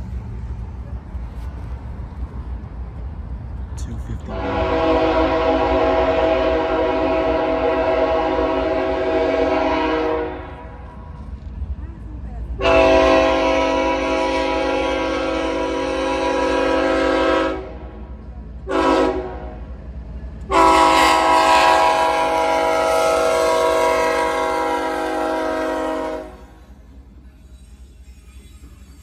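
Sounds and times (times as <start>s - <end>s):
low train rumble: 0.0s - 29.0s
locomotive air horn blasts: 4.3s - 10.8s, 12.6s - 17.8s, 18.7s - 19.6s, 20.5s - 26.6s.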